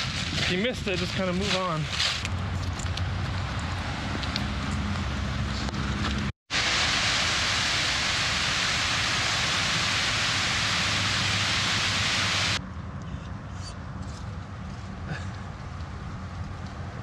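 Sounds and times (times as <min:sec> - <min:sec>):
wind: 0:00.0 - 0:17.0
water rushing over spillway: 0:06.5 - 0:12.6.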